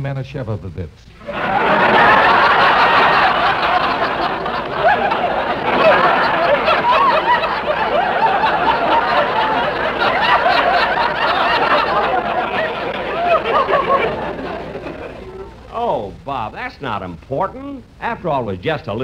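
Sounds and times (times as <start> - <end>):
studio audience laughing: 1.2 - 15.6.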